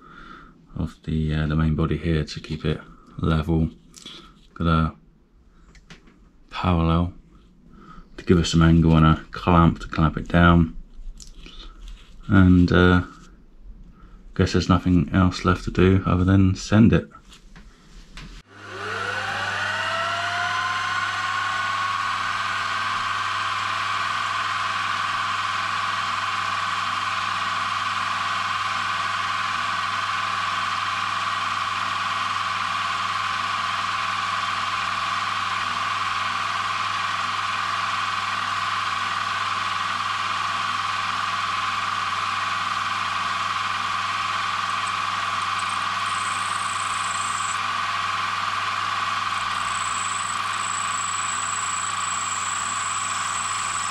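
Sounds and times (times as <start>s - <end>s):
drill boring into brass: 18.5s - 53.9s
milling machine spindle whine: 18.5s - 53.9s.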